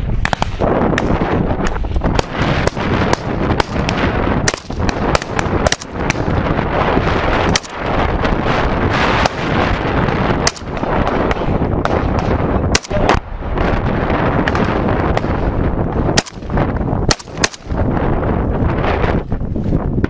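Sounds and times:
rifle shots cracking: 0.2s - 1.2s, 2.1s - 6.6s, 7.2s - 8.0s, 8.9s - 13.2s, 16.1s - 17.8s.

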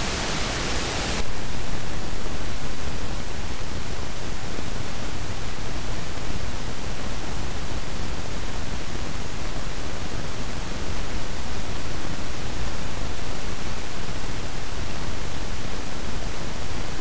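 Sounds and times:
steady electrical hiss: 0.0s - 2.9s.

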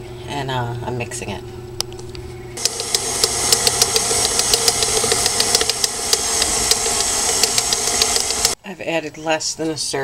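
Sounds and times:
beater clicking and knocking: 2.6s - 8.6s
stand mixer motor hum: 2.6s - 8.6s.

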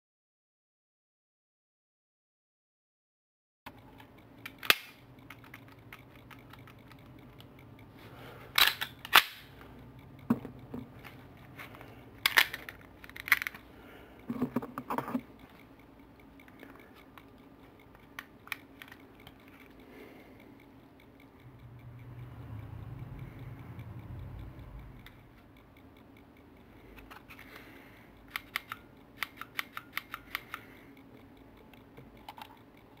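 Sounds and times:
pistol trigger clicking: 4.4s - 7.0s, 8.6s - 9.6s, 28.2s - 30.8s.

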